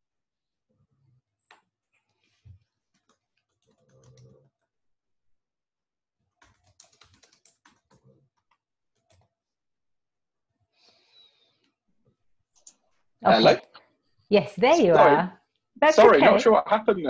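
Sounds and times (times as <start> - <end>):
typing on computer keyboard: 2.9 - 4.6, 6.3 - 9.3.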